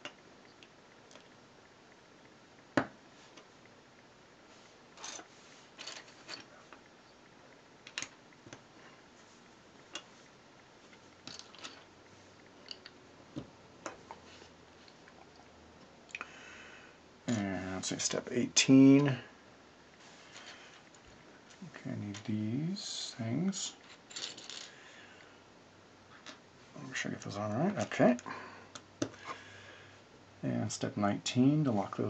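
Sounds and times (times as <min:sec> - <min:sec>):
plastic bricks clicking and rattling: 0:11.2 - 0:11.9.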